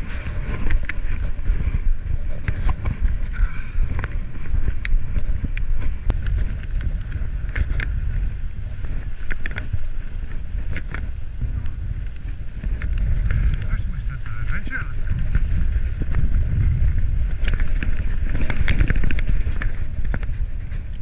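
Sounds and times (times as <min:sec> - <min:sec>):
wind buffeting microphone: 0:00.0 - 0:21.0
small clicks and rattles: 0:17.3 - 0:21.0.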